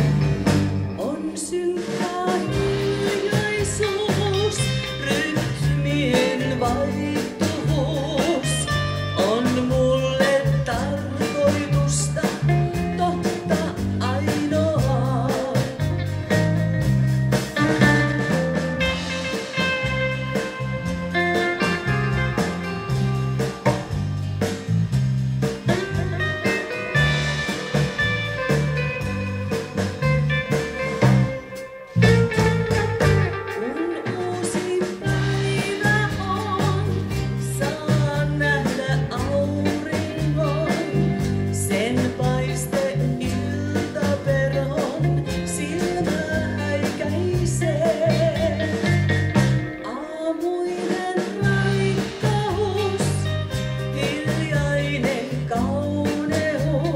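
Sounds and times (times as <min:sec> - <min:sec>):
bass guitar: 0:00.0 - 0:50.1, 0:50.9 - 0:56.9
drum kit beat: 0:00.0 - 0:56.9
guitars: 0:00.0 - 0:56.9
person singing: 0:01.0 - 0:16.1, 0:33.4 - 0:56.9.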